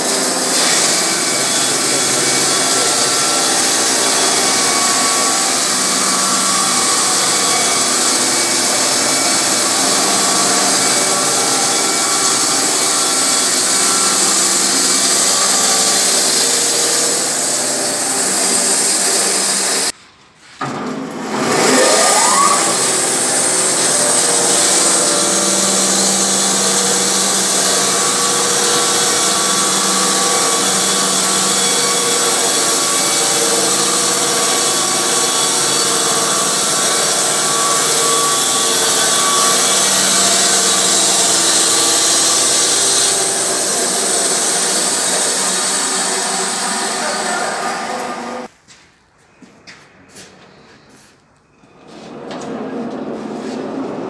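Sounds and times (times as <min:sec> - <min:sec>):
band saw motor droning: 0:00.0 - 0:19.9, 0:21.1 - 0:48.5
saw blade cutting wood: 0:00.0 - 0:20.0, 0:20.6 - 0:48.5
rising machine whine: 0:21.1 - 0:42.6.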